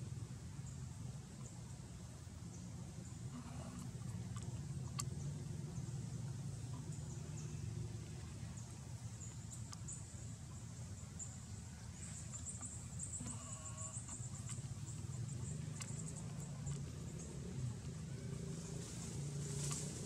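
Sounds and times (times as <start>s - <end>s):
steady low hum: 0.0s - 20.0s
monkey bleat-like call: 13.2s - 14.1s.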